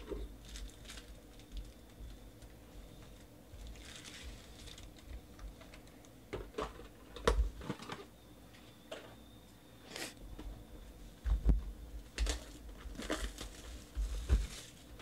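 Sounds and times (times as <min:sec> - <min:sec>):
foil packs crinkling: 0:00.0 - 0:06.0, 0:12.2 - 0:15.0.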